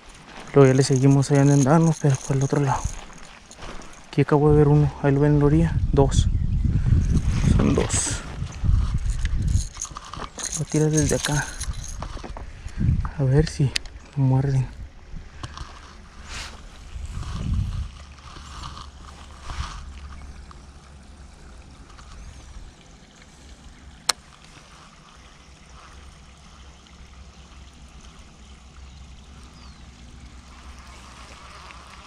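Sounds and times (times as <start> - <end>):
wind rumbling on microphone: 0.8 - 24.0
microphone handling bumps: 6.6 - 9.6.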